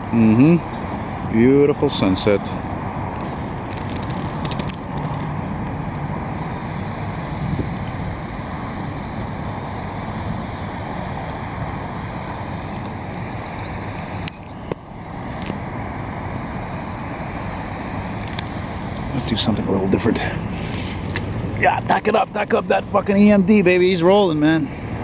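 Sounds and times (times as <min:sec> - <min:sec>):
distant engines rumbling: 0:00.0 - 0:25.0.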